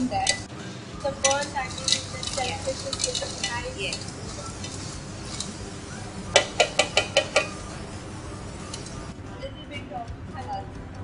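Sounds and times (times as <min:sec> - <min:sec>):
metal spoon stirring in pot: 0:00.1 - 0:08.0
spoon clinking against pot: 0:01.1 - 0:05.6, 0:06.3 - 0:07.6.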